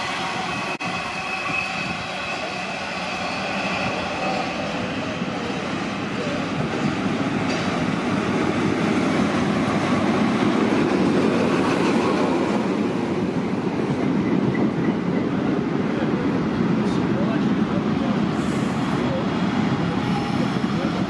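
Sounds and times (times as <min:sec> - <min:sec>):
diesel train passing: 0:00.0 - 0:21.0
wheels rumbling on rail: 0:00.0 - 0:21.0.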